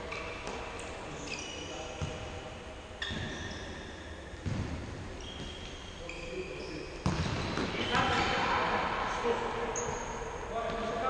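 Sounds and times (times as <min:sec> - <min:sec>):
sneakers squeaking on floor: 0:00.0 - 0:08.5, 0:09.7 - 0:11.0.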